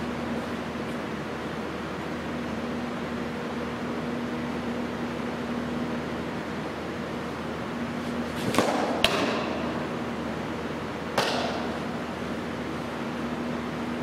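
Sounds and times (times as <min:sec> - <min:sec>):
ball smacking into mitt: 0:08.3 - 0:09.7, 0:11.2 - 0:11.8.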